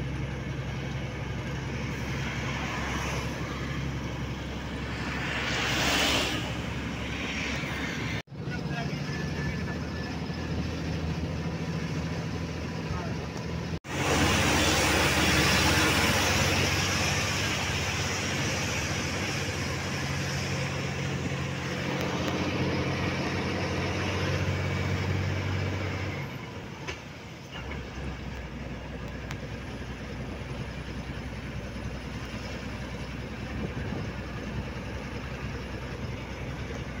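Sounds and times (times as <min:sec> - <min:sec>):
road and wind rush: 0:00.0 - 0:37.0
truck engine running: 0:00.0 - 0:37.0.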